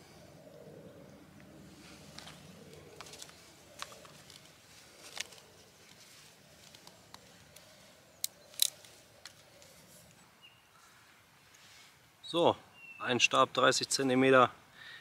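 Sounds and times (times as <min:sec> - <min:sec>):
small cracks of wood snapping: 0:08.2 - 0:09.4.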